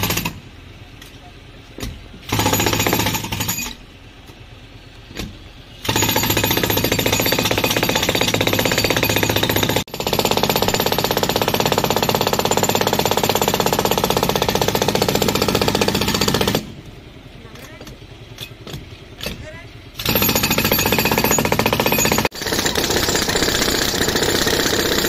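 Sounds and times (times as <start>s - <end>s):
jackhammer hammering concrete: 0.0s - 0.4s, 2.3s - 3.8s, 5.8s - 16.7s, 20.0s - 25.0s.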